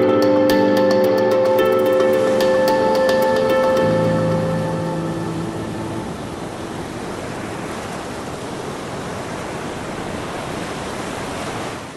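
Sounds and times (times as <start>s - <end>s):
music: 0.0s - 6.2s
sea surf and wind: 0.0s - 11.9s.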